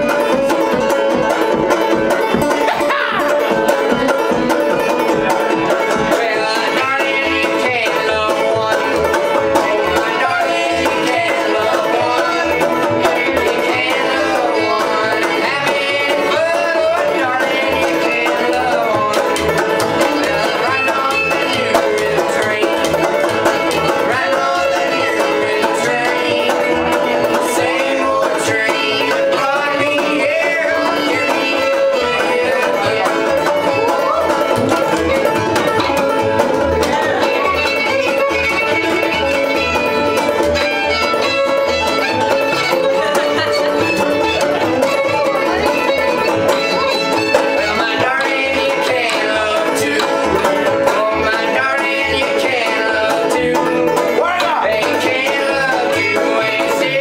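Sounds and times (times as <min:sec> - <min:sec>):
banjo picking: 0:00.0 - 0:57.0
fiddle melody: 0:00.0 - 0:57.0.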